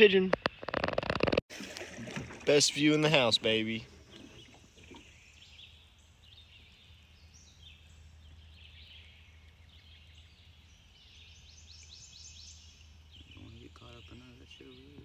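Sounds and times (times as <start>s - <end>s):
birds chirping and whistling: 3.1s - 15.0s.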